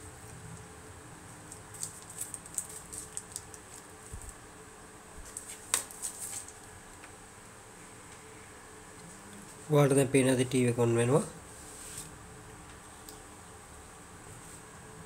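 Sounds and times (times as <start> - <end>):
faint high whine: 7.2 - 15.0.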